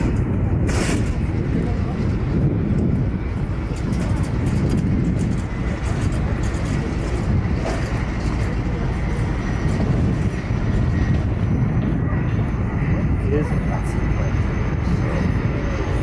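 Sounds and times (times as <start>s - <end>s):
floatplane engine at high power: 0.0s - 16.0s.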